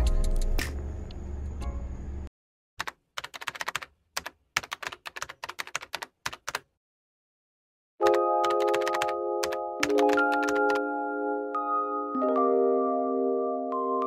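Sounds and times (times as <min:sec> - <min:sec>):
keyboard typing clicks: 0:02.8 - 0:06.6, 0:08.0 - 0:10.8
background music: 0:08.0 - 0:14.0.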